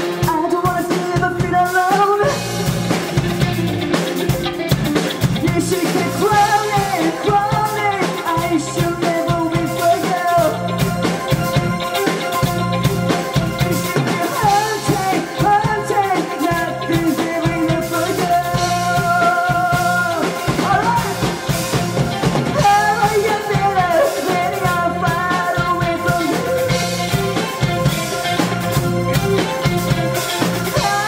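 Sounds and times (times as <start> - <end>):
man singing: 0.0 - 2.9, 5.4 - 11.0, 14.0 - 21.8, 22.4 - 27.0, 30.6 - 31.0
live rock band playing: 0.0 - 31.0.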